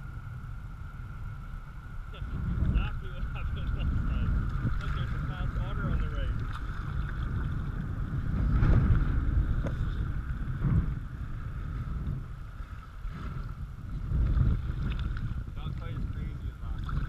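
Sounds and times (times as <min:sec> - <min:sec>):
wind rumbling on microphone: 0:00.0 - 0:17.0
river water splashing on kayak hull: 0:02.3 - 0:17.0.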